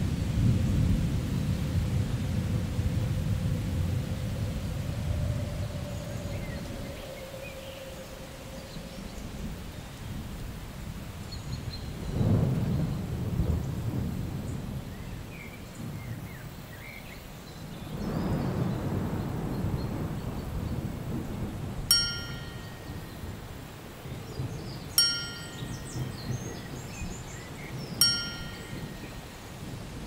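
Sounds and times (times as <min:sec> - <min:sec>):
low rumbling ambience: 0:01.8 - 0:10.0
bright chime dings: 0:21.9 - 0:23.2, 0:25.0 - 0:26.4, 0:28.0 - 0:29.2.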